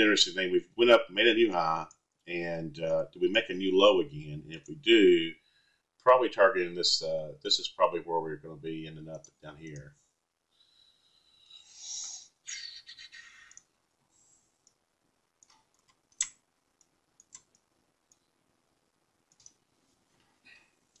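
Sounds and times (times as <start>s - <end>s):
computer mouse clicks: 15.4s - 18.2s, 19.3s - 19.6s.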